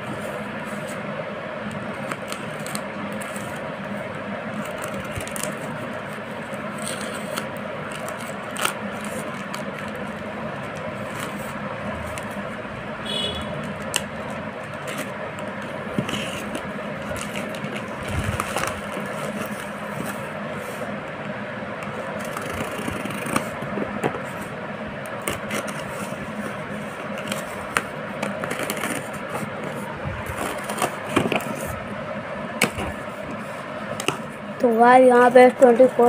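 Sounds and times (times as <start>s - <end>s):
plastic mailer crinkling and tearing: 4.5s - 11.6s, 13.8s - 20.2s, 27.1s - 31.6s.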